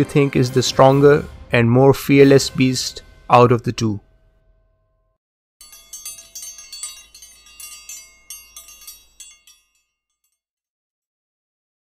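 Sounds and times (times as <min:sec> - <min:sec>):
tinkling metallic chimes: 0:05.6 - 0:10.4.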